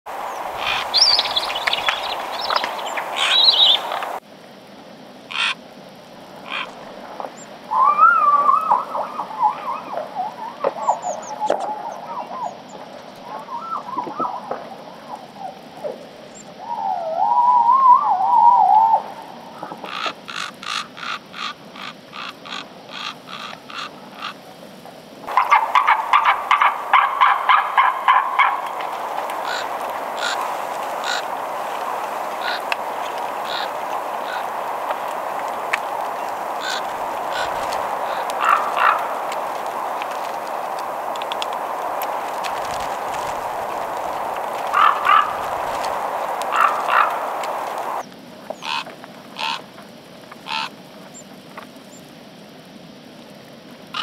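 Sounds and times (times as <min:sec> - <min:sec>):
eagles yelping calls: 0:00.2 - 0:04.2, 0:05.3 - 0:05.6, 0:06.4 - 0:06.9, 0:07.7 - 0:12.5, 0:25.3 - 0:48.0.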